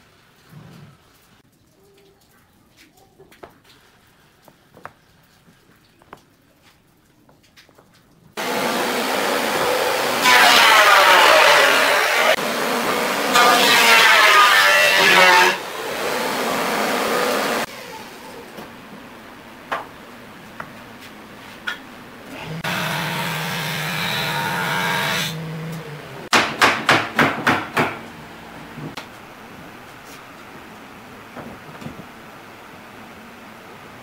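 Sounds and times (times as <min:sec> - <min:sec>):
sharp knocks: 0:26.3 - 0:28.0.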